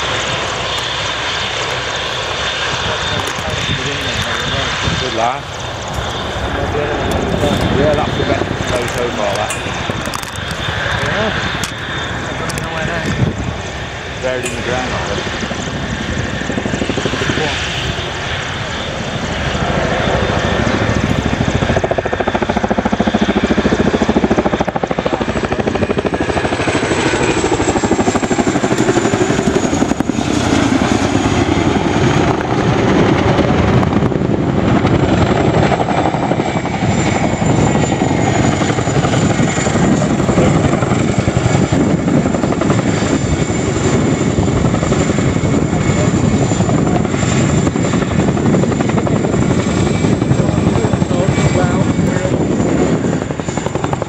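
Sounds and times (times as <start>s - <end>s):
helicopter flying past: 0.0s - 54.0s
high steady turbine whine: 0.0s - 54.0s.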